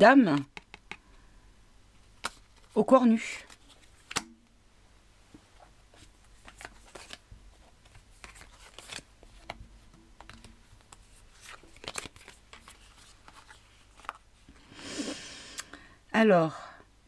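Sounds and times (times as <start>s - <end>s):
paper cards tapping and rustling: 0.3s - 1.0s, 2.2s - 2.8s, 5.9s - 14.3s.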